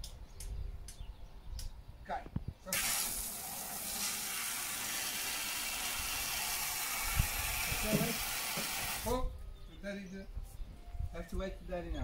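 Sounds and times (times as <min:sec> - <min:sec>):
garden hose spraying water: 0:02.7 - 0:09.1.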